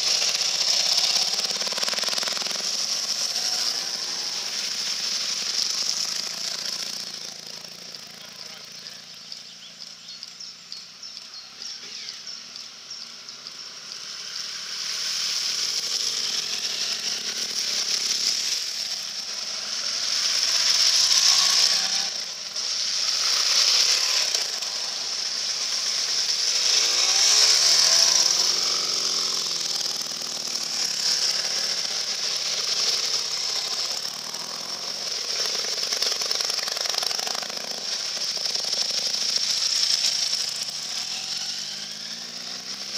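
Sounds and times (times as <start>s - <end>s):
motorcycle engines revving: 0.0s - 42.9s.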